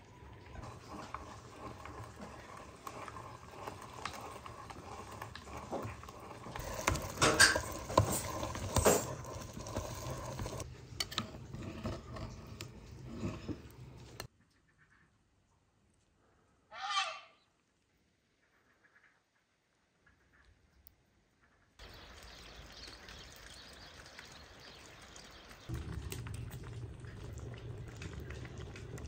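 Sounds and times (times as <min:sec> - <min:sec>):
dishes and utensils clinking: 0:06.6 - 0:14.3.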